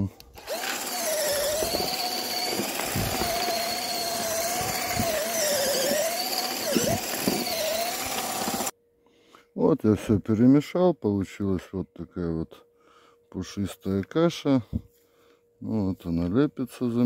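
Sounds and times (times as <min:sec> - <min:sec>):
cordless drill motor whine: 0:00.3 - 0:08.7
churning thick mix: 0:00.4 - 0:08.7.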